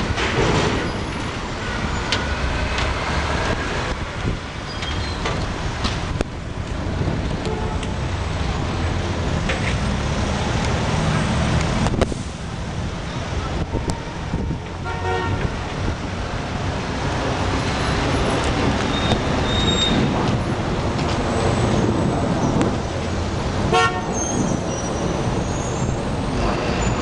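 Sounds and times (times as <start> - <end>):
busy street traffic: 0.0 - 27.0
vehicle horn toots: 14.8 - 15.5, 23.7 - 24.3.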